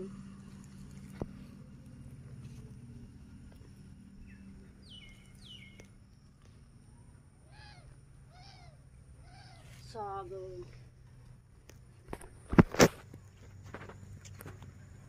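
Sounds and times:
steady low hum: 0.0 - 15.0
rising and falling bird call: 4.2 - 5.9, 6.9 - 9.9
bird chirps: 4.2 - 10.0.

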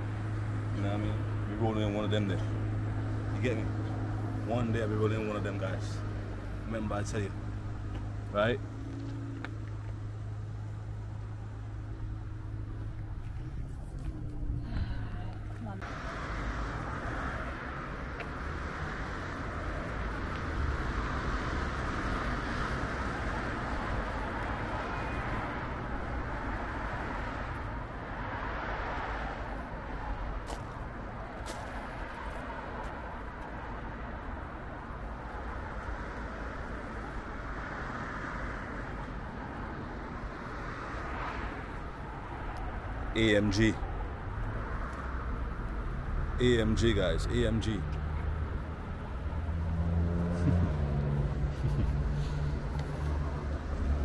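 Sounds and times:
distant road traffic hum: 0.0 - 54.0.

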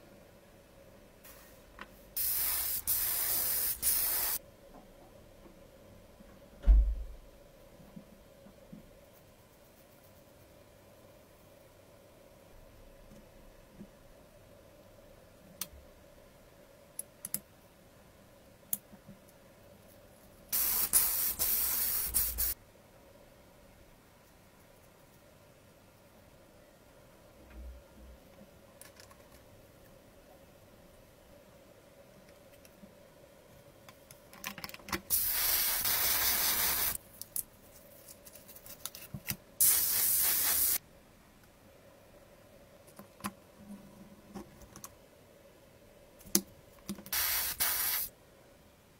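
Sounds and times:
spray can hissing: 2.2 - 4.4, 20.5 - 22.6, 35.1 - 37.0, 39.6 - 40.8, 47.1 - 48.1.

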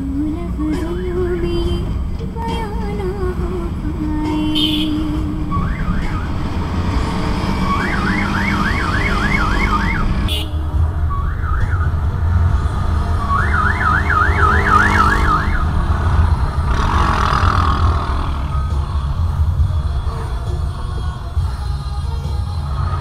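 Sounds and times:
car road and engine rumble: 0.0 - 23.0
ambulance siren yelping: 4.6 - 15.9.

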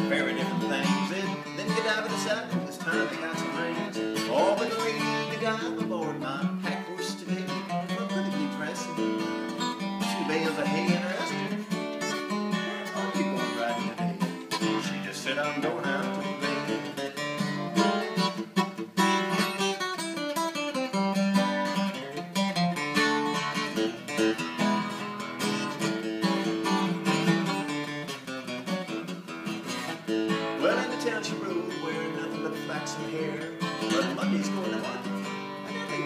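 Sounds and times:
man singing: 0.0 - 18.4, 29.8 - 36.0
acoustic guitar strumming: 0.0 - 36.0.

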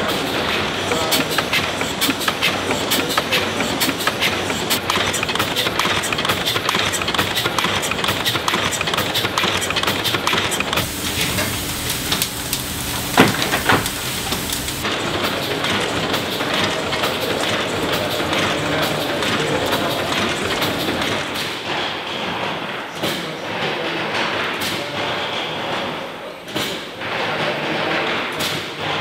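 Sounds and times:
steam engine clatter: 0.0 - 29.0
steam hiss: 10.8 - 15.4, 16.1 - 21.5.

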